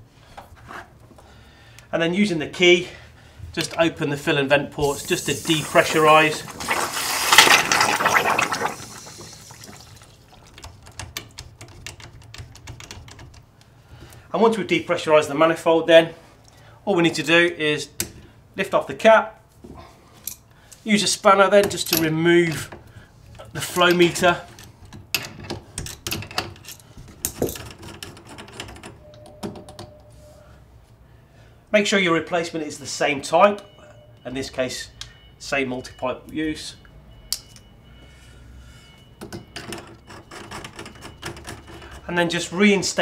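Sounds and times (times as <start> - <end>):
water rushing into a bucket: 4.8 - 10.6
water trickling and dripping: 4.9 - 10.6.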